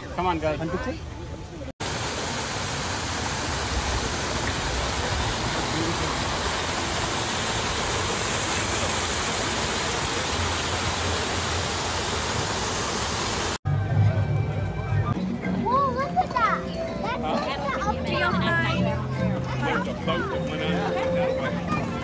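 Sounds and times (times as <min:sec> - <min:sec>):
small waterfall splashing: 0:01.8 - 0:13.6.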